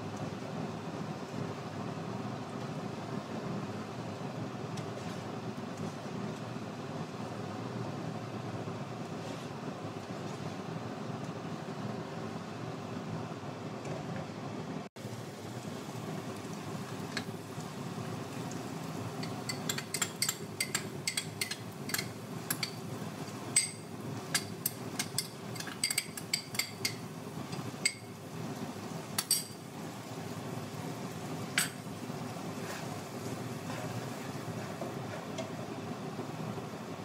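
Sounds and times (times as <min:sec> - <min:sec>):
spatula scraping frying pan: 0:32.4 - 0:35.4.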